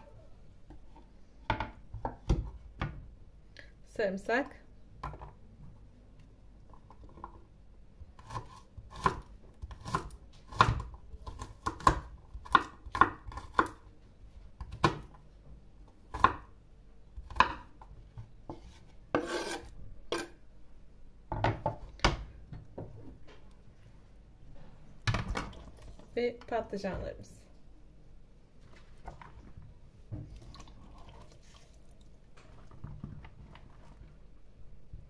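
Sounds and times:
knife chopping on wooden board: 18.5 - 20.3.

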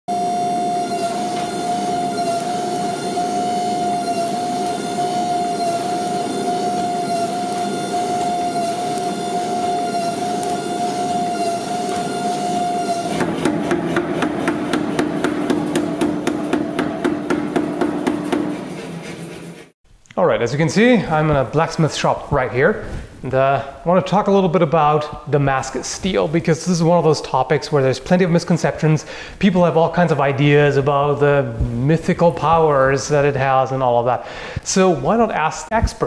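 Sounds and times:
hydraulic press whining: 0.1 - 18.8
power hammer pounding metal: 1.0 - 19.7.

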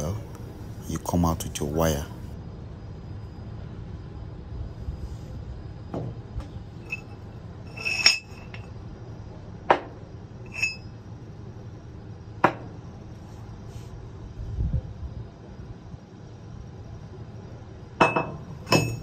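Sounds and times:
metal clinks and knocks: 6.8 - 8.7, 10.5 - 10.9, 18.0 - 19.0.

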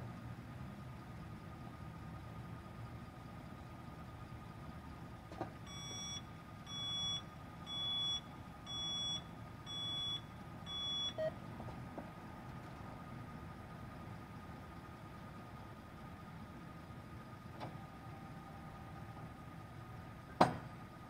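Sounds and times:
truck engine idling: 0.0 - 21.0
reversing alarm beeps: 5.6 - 11.4.

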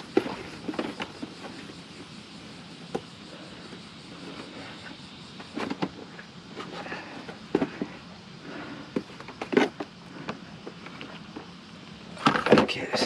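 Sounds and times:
plastic parts clicking and knocking: 12.2 - 12.8.

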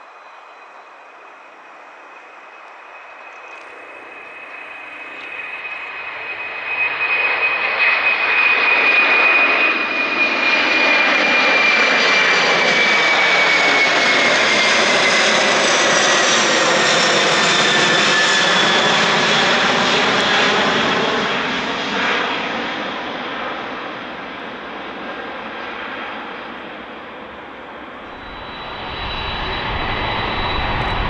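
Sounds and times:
jet engines roaring at takeoff: 0.0 - 31.0
high fan whine: 28.0 - 31.0.

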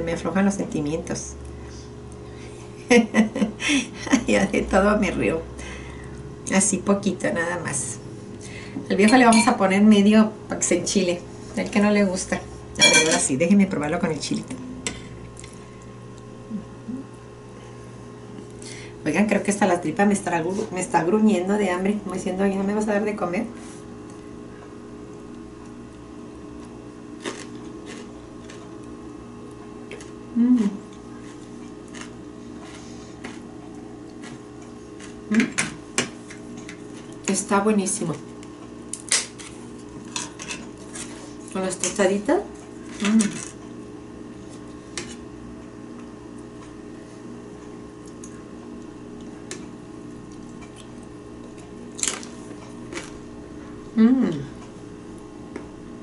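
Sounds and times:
low steady hum: 0.0 - 56.0.

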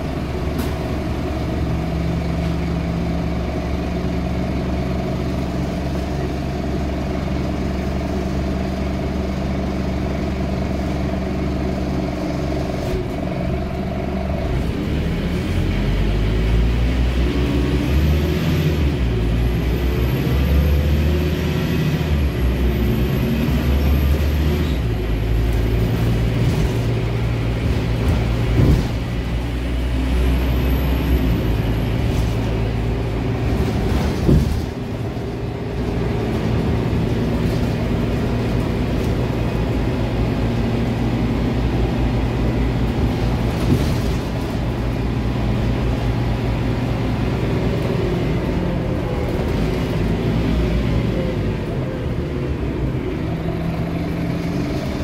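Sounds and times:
bus diesel engine: 0.0 - 55.0.

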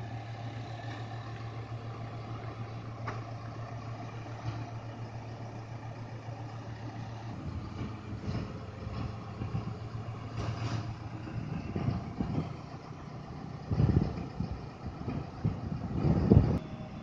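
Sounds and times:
diesel engine running at low revs: 0.0 - 17.0
wind buffeting microphone: 7.3 - 16.6.

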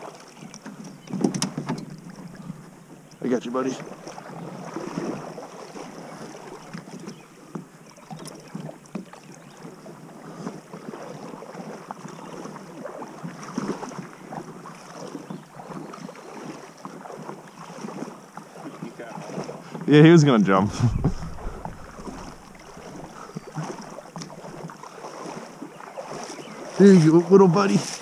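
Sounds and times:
water splashing against plastic hull: 0.0 - 9.2, 20.5 - 28.0.

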